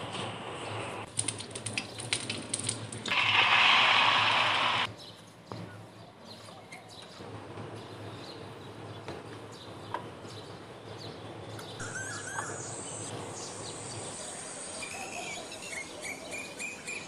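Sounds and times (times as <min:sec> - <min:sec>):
egg sizzling in frying pan: 0:03.1 - 0:04.9.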